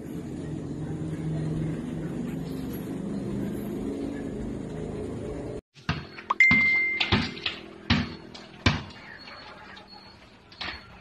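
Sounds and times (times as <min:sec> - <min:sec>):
short high beep: 0:06.3 - 0:07.1.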